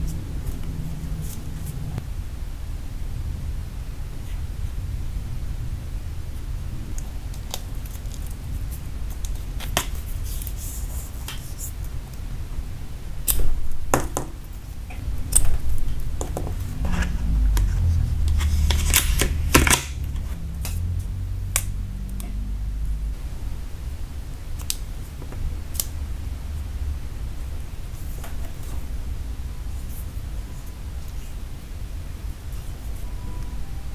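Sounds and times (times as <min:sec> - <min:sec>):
low rumble: 0:14.7 - 0:24.4.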